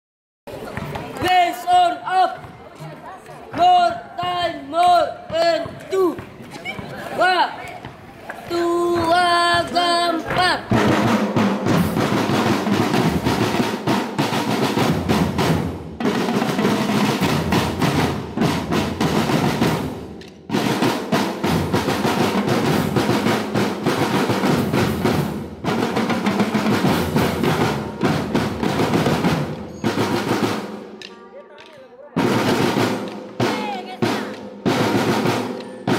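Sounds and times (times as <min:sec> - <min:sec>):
snare drum rolls: 0:08.9 - 0:35.9.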